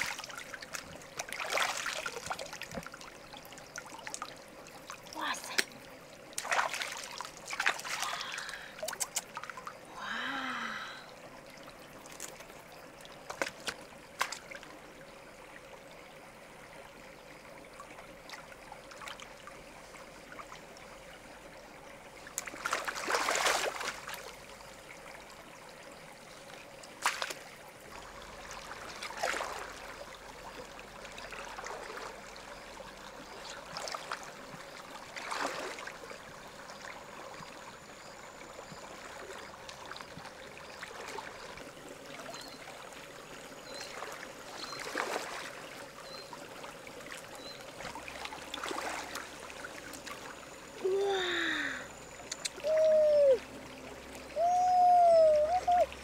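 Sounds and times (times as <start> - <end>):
water splashing: 0.0 - 10.8, 11.9 - 14.8, 22.2 - 24.5, 26.9 - 27.6, 28.2 - 30.1, 33.3 - 36.1, 39.2 - 42.9, 43.7 - 56.0
river water trickling: 0.0 - 56.0.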